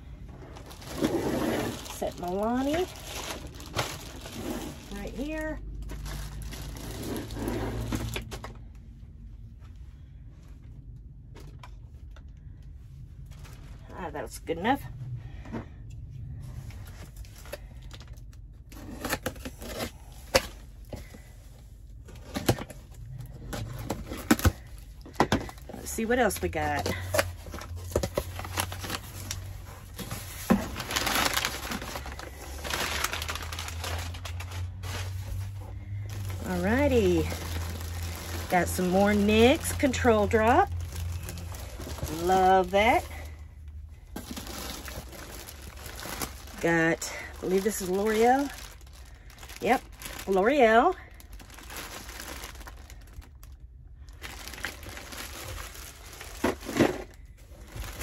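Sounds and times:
plastic bags crinkling: 0:00.0 - 0:08.5, 0:21.9 - 0:58.0.

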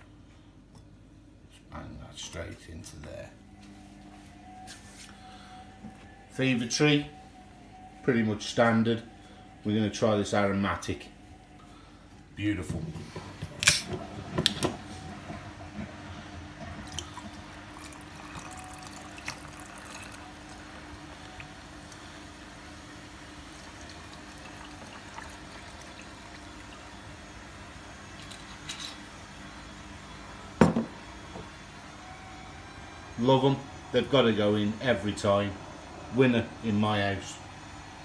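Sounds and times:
tonic pouring over ice: 0:16.8 - 0:21.9, 0:23.3 - 0:26.9
drink fizzing: 0:16.8 - 0:22.0, 0:23.2 - 0:27.2.

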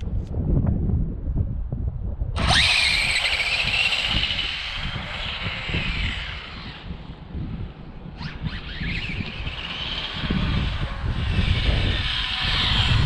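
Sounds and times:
wind rumble on microphone: 0:00.0 - 0:13.0
electric motor whine: 0:02.4 - 0:13.0.

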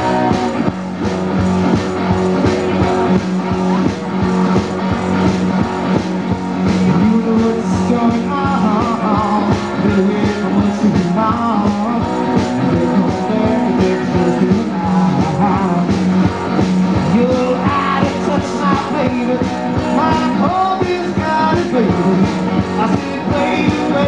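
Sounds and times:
drums: 0:00.0 - 0:24.0
rock band playing live: 0:00.0 - 0:24.0
man singing into microphone: 0:06.9 - 0:16.1, 0:17.0 - 0:24.0.

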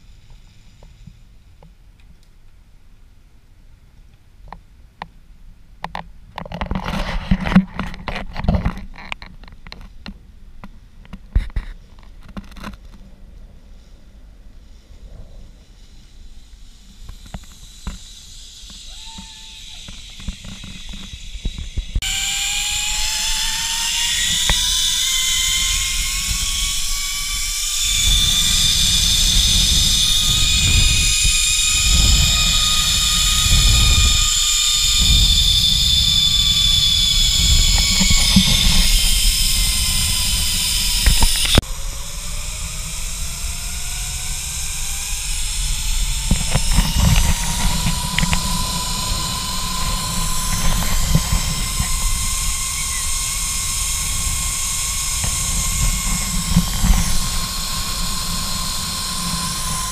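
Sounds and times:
pulleys whining along steel cable: 0:15.8 - 0:59.9
wind rushing over microphone: 0:19.8 - 0:59.9.

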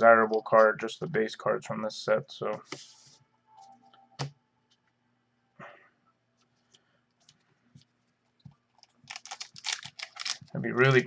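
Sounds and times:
trading cards rustling: 0:08.7 - 0:11.0.

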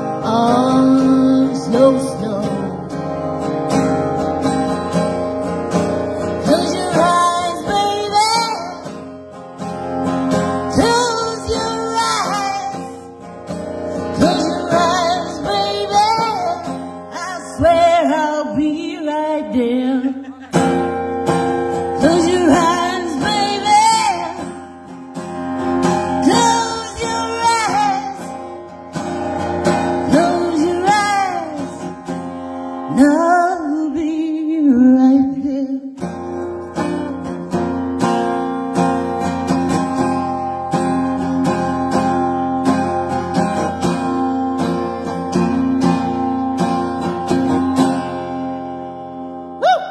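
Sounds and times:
woman singing: 0:00.0 - 0:03.2, 0:06.2 - 0:09.1, 0:10.6 - 0:13.2, 0:14.0 - 0:20.5, 0:21.9 - 0:24.7, 0:26.1 - 0:28.6, 0:29.7 - 0:32.0, 0:32.7 - 0:36.0
strummed acoustic guitar: 0:00.0 - 0:49.6.

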